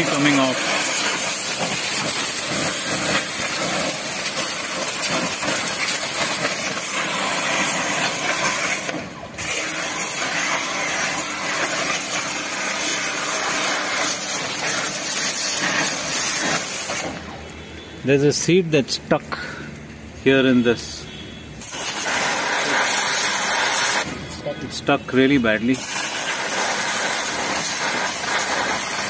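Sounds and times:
pressure washer water jet spraying: 0.0s - 17.4s, 21.6s - 24.3s, 25.6s - 29.0s.

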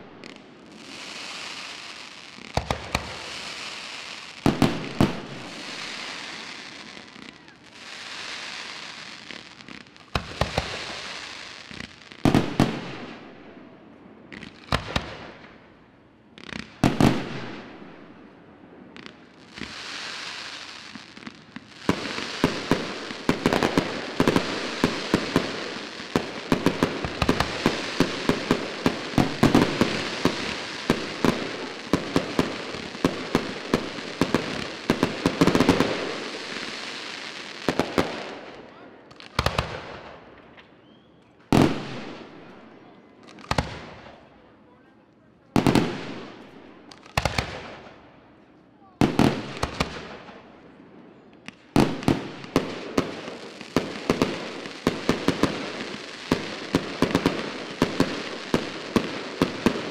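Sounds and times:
fireworks hissing: 0.0s - 13.0s, 19.0s - 38.4s
rapid fireworks crackling: 0.0s - 15.6s, 16.3s - 40.6s, 41.5s - 44.8s, 45.5s - 48.1s, 49.0s - 59.9s
fireworks bursting: 0.0s - 15.7s, 16.3s - 44.4s, 45.6s - 48.1s, 49.0s - 59.9s.

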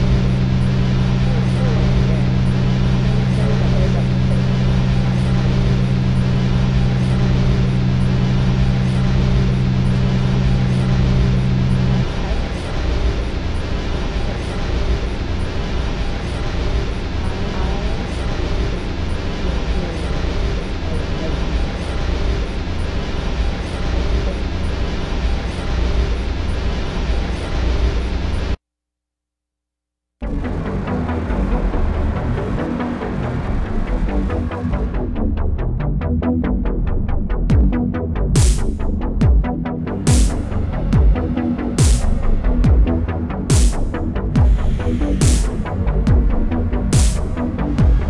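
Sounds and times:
dense static and rumble: 0.0s - 28.6s, 30.2s - 48.0s
harsh distorted noise music: 0.0s - 28.6s, 30.2s - 48.0s
low droning tones: 0.0s - 28.6s, 30.2s - 48.0s.

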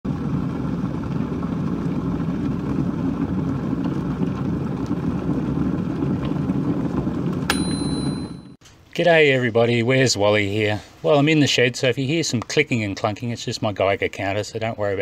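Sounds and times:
high-pitched beep: 7.5s - 8.6s.

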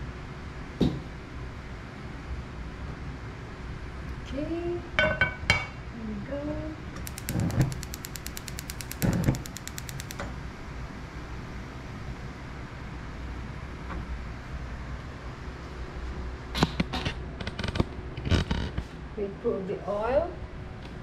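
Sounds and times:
gas igniter clicking: 7.0s - 10.3s.

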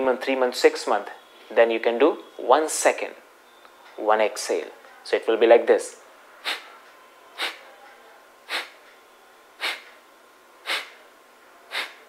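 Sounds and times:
forceful nasal exhalations: 6.4s - 6.8s, 7.4s - 7.6s, 8.5s - 8.8s, 9.6s - 10.0s, 10.6s - 11.0s, 11.7s - 12.0s.

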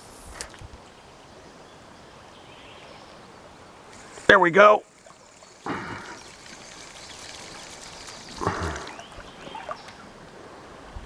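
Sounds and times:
stream water trickling: 2.2s - 11.0s
fish splashing at water surface: 3.9s - 10.1s.

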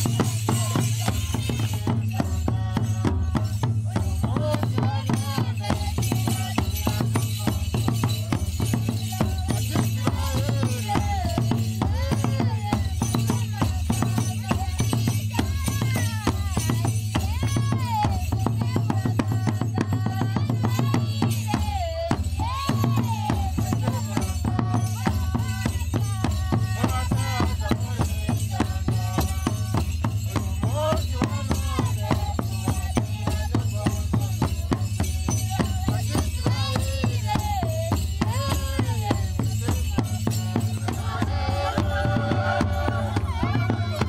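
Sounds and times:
drums: 0.0s - 44.0s
person singing: 35.5s - 44.0s.

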